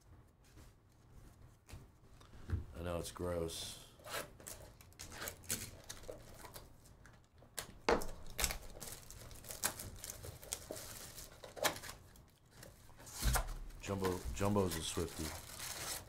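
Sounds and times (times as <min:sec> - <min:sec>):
plastic wrap crinkling and tearing: 0:04.4 - 0:06.7, 0:08.1 - 0:12.5, 0:13.3 - 0:16.0.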